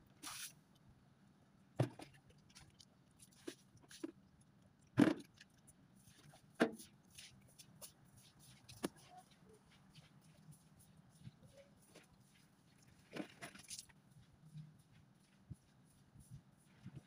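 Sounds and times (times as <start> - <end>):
broom scraping wet tiled floor: 0.2 - 0.5.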